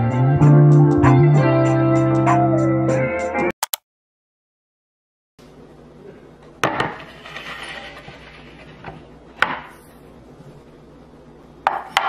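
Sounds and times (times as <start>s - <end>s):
board scraping across stone: 6.8s - 9.1s.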